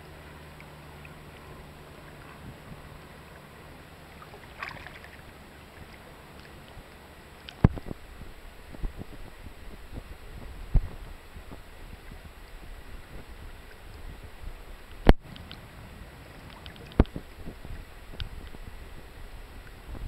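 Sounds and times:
water lapping against boat: 0.0s - 20.0s
wind on microphone: 2.2s - 3.0s, 7.6s - 20.0s.

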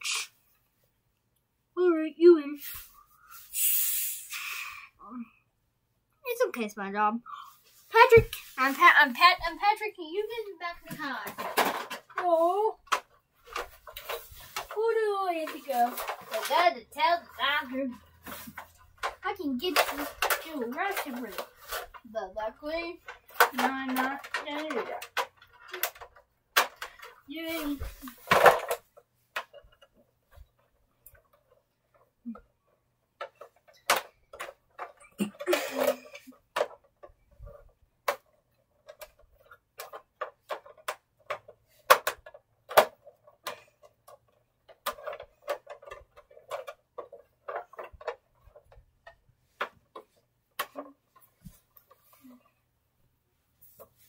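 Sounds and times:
toys clicking and knocking: 8.0s - 52.6s.

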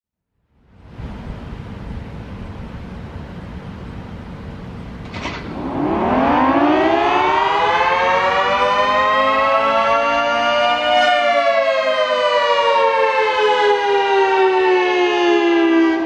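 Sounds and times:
low background rumble: 0.6s - 5.1s
warning siren winding up: 5.4s - 16.0s.

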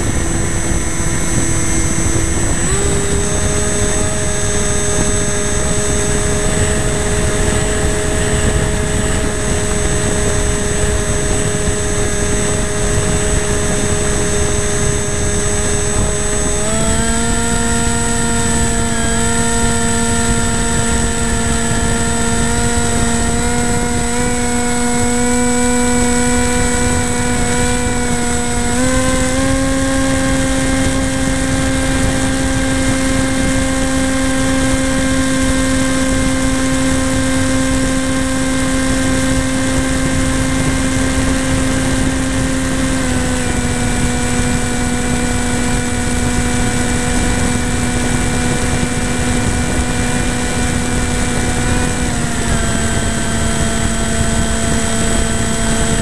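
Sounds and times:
model plane motor and propeller: 0.0s - 56.0s.

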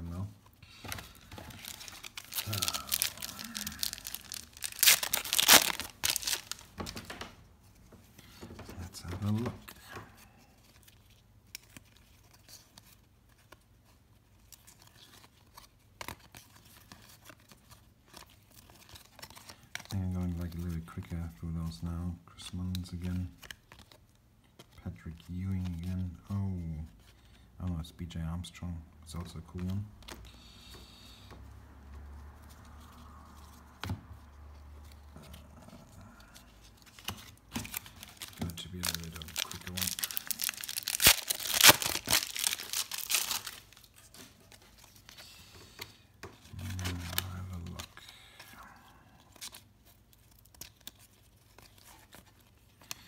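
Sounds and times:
trading cards rustling and snapping: 0.7s - 7.4s, 8.4s - 21.1s, 32.4s - 45.2s, 45.8s - 53.0s
trading cards handled on a table: 31.2s - 48.5s.

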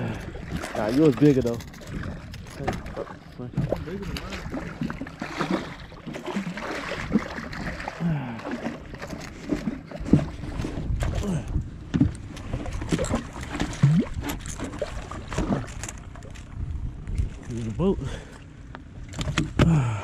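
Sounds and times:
fish thrashing and splashing: 0.0s - 11.5s, 12.4s - 16.6s.

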